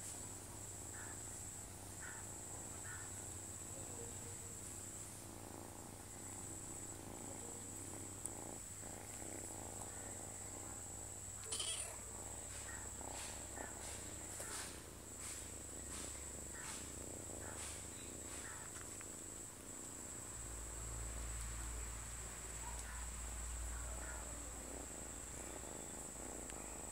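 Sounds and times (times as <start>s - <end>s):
cat purring: 0.2s - 26.9s
soft regular ticks: 5.4s - 20.0s, 21.2s - 21.8s, 22.5s - 26.9s.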